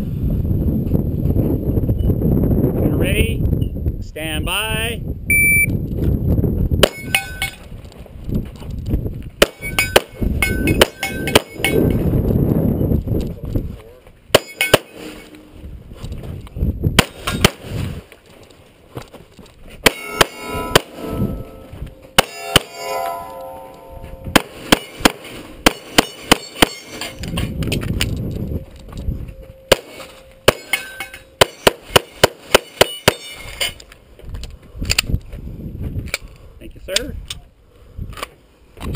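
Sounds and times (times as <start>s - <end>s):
pistol shots: 6.8s - 7.2s, 9.4s - 10.2s, 17.0s - 17.7s, 24.3s - 27.2s, 29.7s - 33.3s
steel targets ringing: 6.8s - 7.6s, 9.4s - 12.0s, 14.4s - 15.6s, 19.8s - 27.6s, 28.5s - 33.8s.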